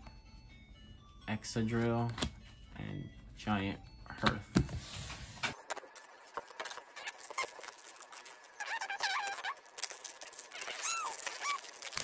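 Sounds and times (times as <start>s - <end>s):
foil wrapper crinkling and tearing: 5.6s - 12.0s
short high squeaks: 6.9s - 12.0s.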